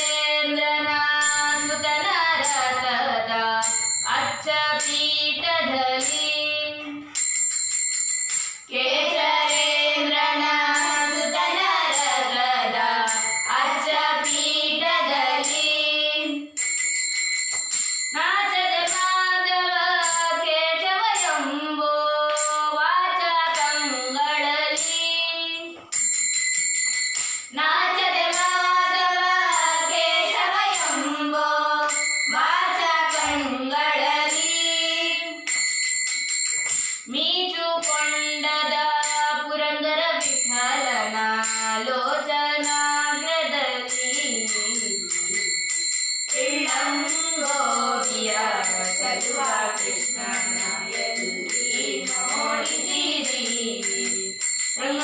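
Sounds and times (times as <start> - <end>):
hand cymbals ringing: 0.0 - 20.5, 23.5 - 37.2, 37.8 - 39.5, 40.2 - 55.0
children singing: 8.7 - 16.4, 27.7 - 35.4, 46.3 - 55.0.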